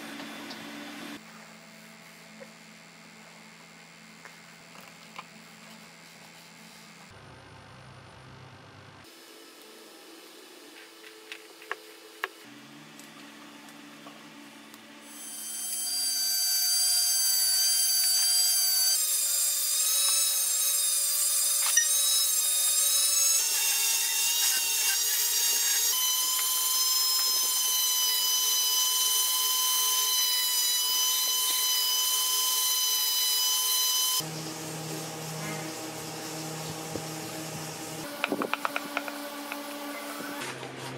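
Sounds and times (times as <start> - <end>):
rotary tool cutting whine: 21.4 - 40.5.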